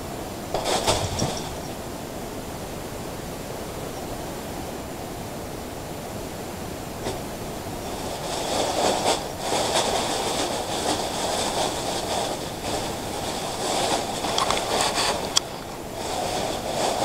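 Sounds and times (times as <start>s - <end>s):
plastic bag crinkling: 7.9s - 17.0s.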